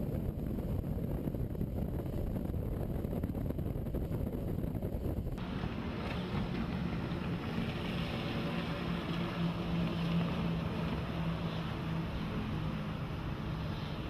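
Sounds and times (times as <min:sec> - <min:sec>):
wake and spray rushing: 0:00.0 - 0:14.0
boat engine drone: 0:04.6 - 0:14.0.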